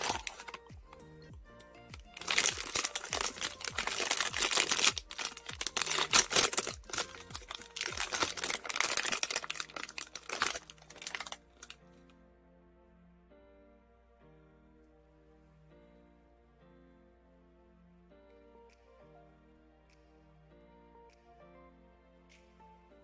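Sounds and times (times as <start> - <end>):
foil pouch crinkling: 0.0 - 1.0, 2.0 - 11.8.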